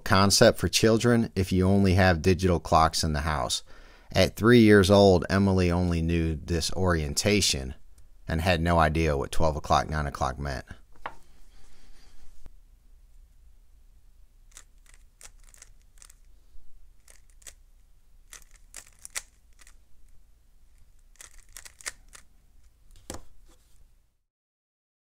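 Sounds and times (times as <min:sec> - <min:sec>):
plastic puzzle cube clicking: 0:14.5 - 0:16.3, 0:17.0 - 0:17.6, 0:18.3 - 0:19.8, 0:20.7 - 0:22.3.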